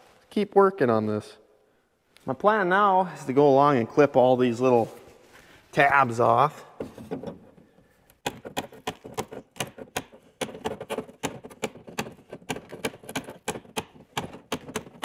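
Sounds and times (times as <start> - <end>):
hand cutters snipping plastic: 8.1 - 15.0.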